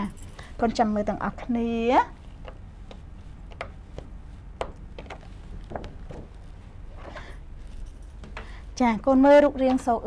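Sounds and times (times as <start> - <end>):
low room hum: 0.0 - 10.0
faint sharp clicks and taps: 2.4 - 6.2.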